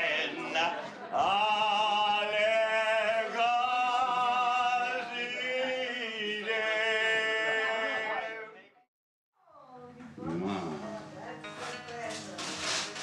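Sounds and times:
man singing operatically: 0.0 - 8.4.

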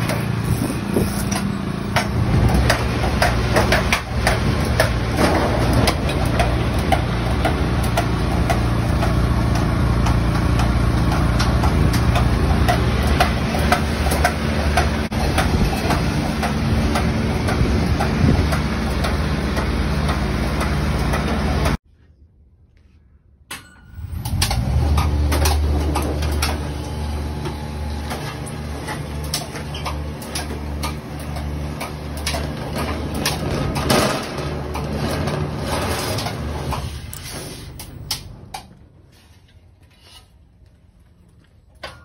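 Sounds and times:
roll-forming machine running: 24.4 - 37.7.

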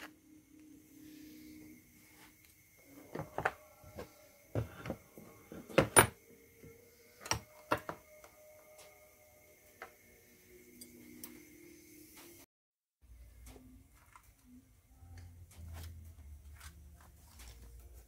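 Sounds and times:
faint high whine: 0.0 - 12.5
objects knocking and clinking: 3.1 - 6.2, 7.2 - 8.2.

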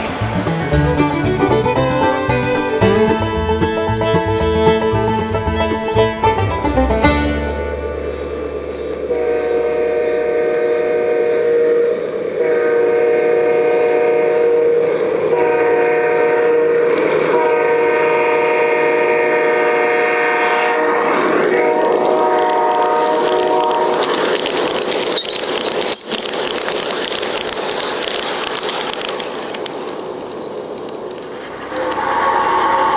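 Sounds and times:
model locomotive horn blasts: 4.0 - 24.2.

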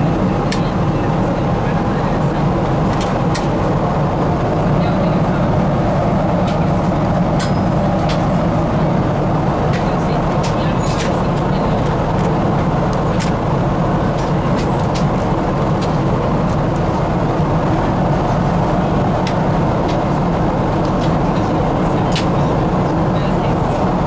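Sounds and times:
airliner cabin engine rush: 0.0 - 24.0.

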